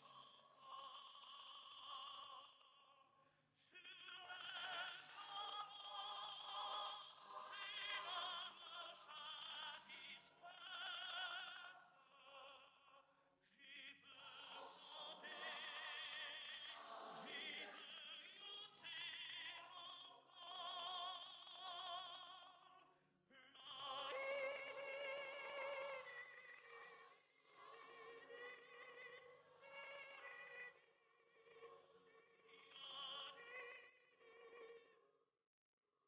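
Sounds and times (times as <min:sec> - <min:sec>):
mixed choir singing: 0:03.8 - 0:12.6, 0:13.6 - 0:30.8.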